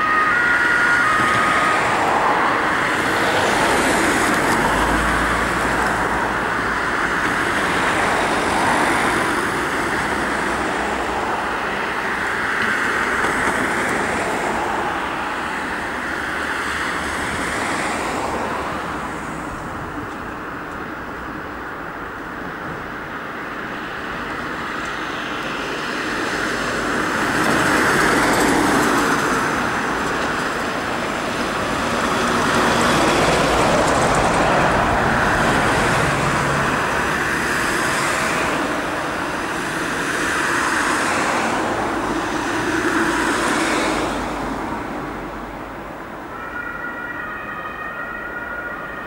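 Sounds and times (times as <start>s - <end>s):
two-tone ambulance siren: 0.0s - 17.1s, 45.9s - 49.0s
road traffic: 0.0s - 49.0s.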